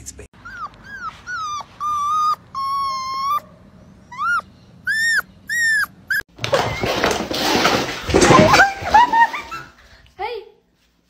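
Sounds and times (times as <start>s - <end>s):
dog whining: 0.4s - 7.1s.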